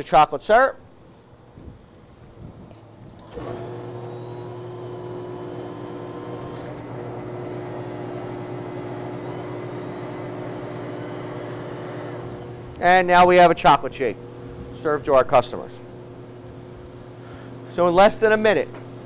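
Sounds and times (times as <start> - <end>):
milkshake machine motor hum: 2.8 - 12.8.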